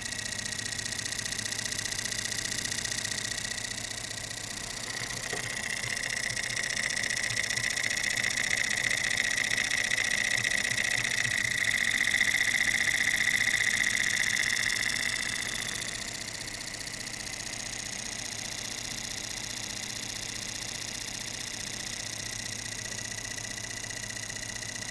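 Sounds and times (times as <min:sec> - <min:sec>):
toy steam engine puffing: 0:00.0 - 0:16.4.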